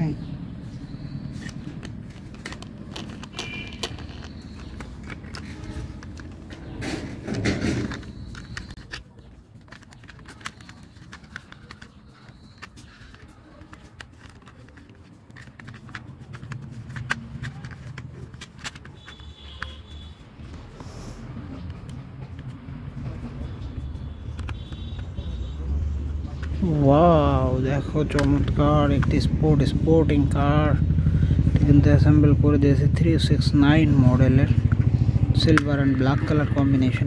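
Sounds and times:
plastic toy parts clicking: 1.4 - 20.1, 24.2 - 25.3, 27.7 - 29.3, 35.4 - 37.0.

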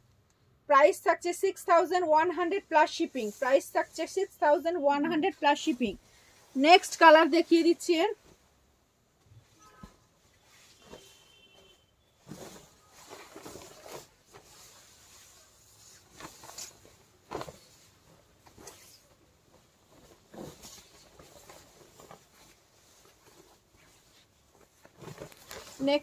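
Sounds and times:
fabric rustling and swishing: 1.7 - 26.0.

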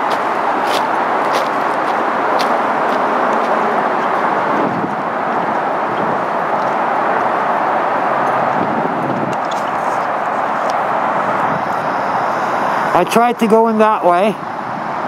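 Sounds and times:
footsteps crunching on gravel: 0.0 - 5.0
traffic roar: 0.0 - 15.0.

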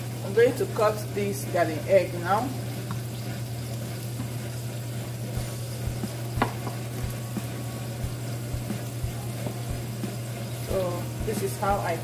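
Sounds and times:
sauce sizzling in a pan: 0.0 - 12.0
steady low hum: 0.0 - 12.0
knife knocking on cutting board: 6.4 - 6.8.

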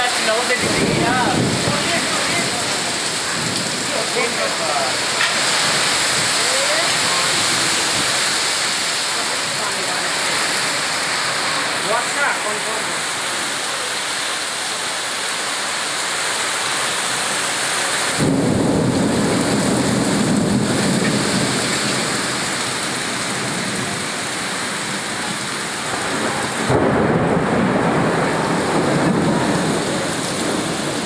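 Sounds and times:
heavy rain pouring: 0.0 - 31.0
deep thunder rumbles: 0.6 - 9.6, 18.1 - 31.0.

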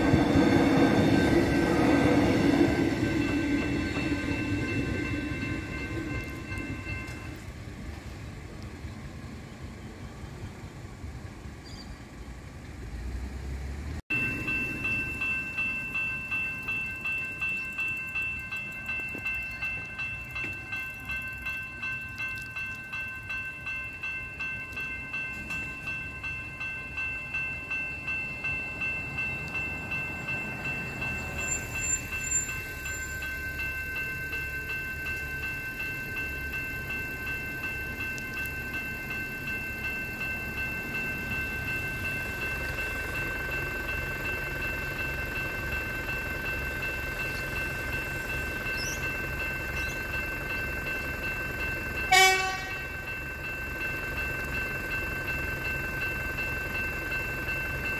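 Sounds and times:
level crossing bells ringing: 0.0 - 7.5, 14.1 - 57.9
train horn blast: 52.1 - 52.8.

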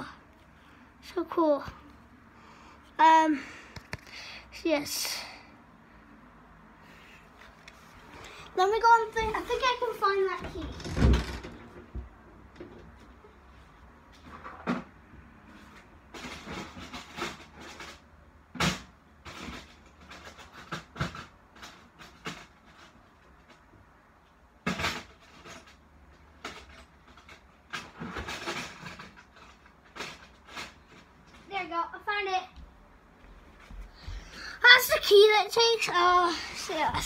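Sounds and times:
rummaging knocks and clicks: 24.6 - 31.4.

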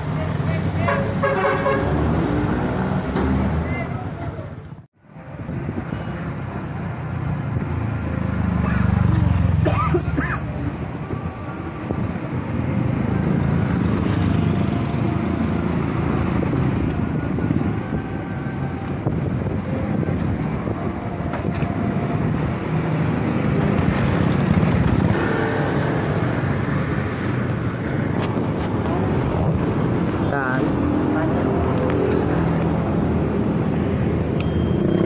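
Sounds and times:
street traffic rumble: 0.0 - 35.0
motorcycle engines running: 6.4 - 11.2, 22.8 - 35.0.

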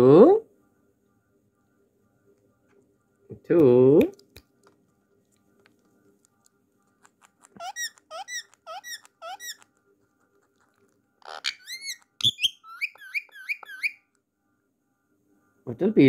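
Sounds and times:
parrot squeaky calls: 7.1 - 9.7, 11.2 - 14.0.

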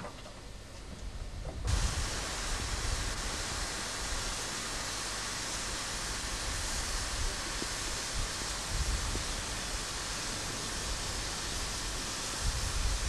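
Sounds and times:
train rumbling along track: 0.0 - 13.0
wind on microphone: 1.2 - 3.2, 12.4 - 13.0.

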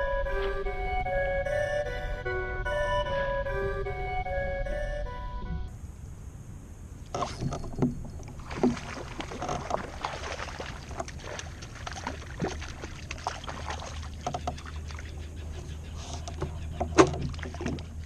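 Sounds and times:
steady low rumble: 0.0 - 13.6
water lapping against hull: 7.1 - 18.0.

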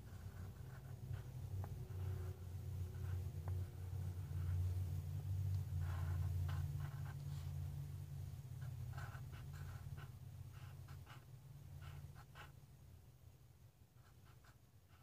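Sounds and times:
pencil scratching on paper: 0.0 - 4.6, 5.7 - 7.6, 8.6 - 12.6, 14.0 - 15.0.

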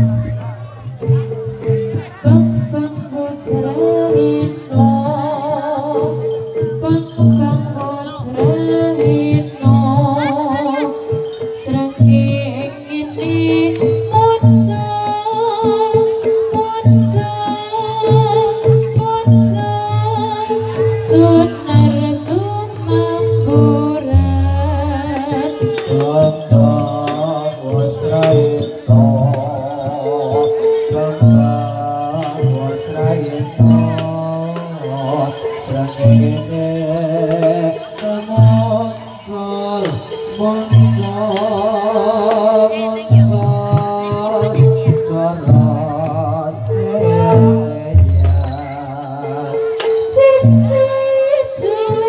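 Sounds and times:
gamelan music: 0.0 - 52.0
person singing wavering vocal line: 0.0 - 52.0
deep low percussion stroke: 45.3 - 48.9.

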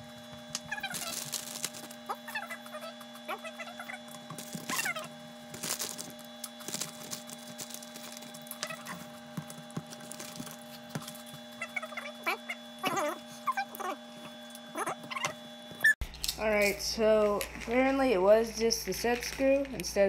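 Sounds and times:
squeaky animal calls: 2.1 - 5.1, 11.6 - 14.0, 14.7 - 16.0.

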